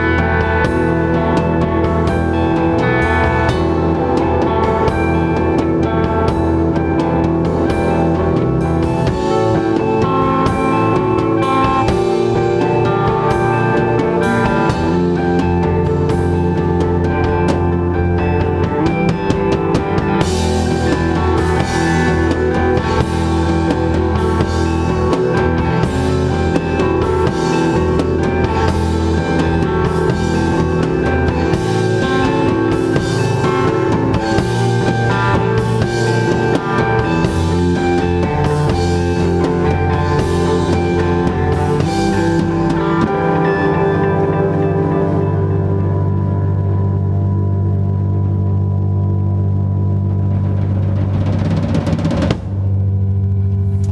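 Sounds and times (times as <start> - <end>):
live band playing: 0.0 - 53.9.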